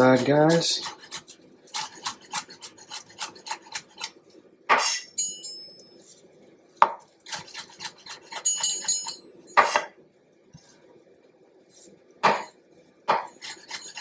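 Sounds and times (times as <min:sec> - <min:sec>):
knife chopping on cutting board: 0:00.2 - 0:05.0, 0:06.8 - 0:08.4, 0:09.6 - 0:09.9, 0:12.2 - 0:14.0.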